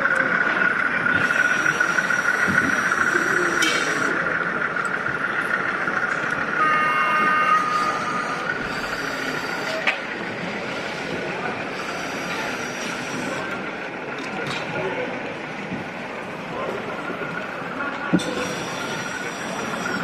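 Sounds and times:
model trains running: 0.0 - 20.0
steady high whine: 0.0 - 20.0
short chord-like tone: 6.6 - 8.0.

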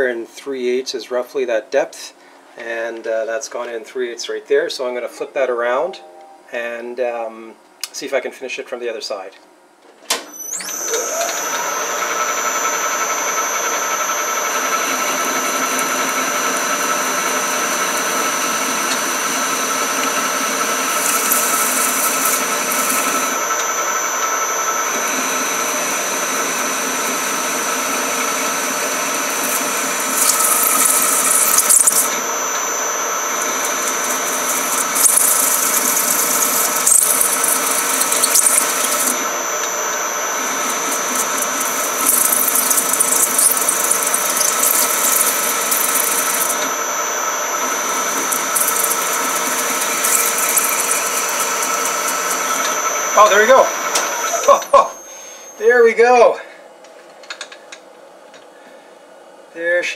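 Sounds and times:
lathe machine whine: 10.4 - 56.1
high hiss of cutting tool: 19.4 - 23.4, 25.0 - 46.8, 47.4 - 53.6.

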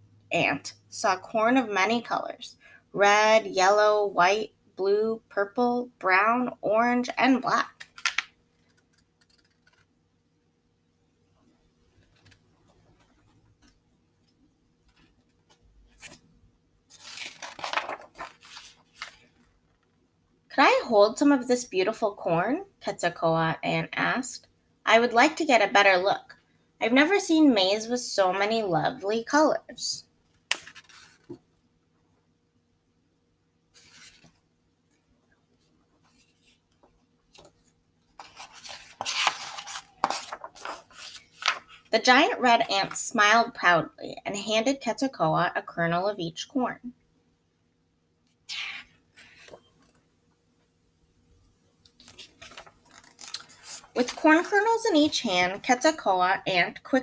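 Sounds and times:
page turning rustle: 7.7 - 9.9, 12.0 - 13.8, 14.9 - 16.3, 16.9 - 19.6, 30.3 - 31.4, 33.7 - 34.4, 36.0 - 41.9, 51.9 - 54.6.

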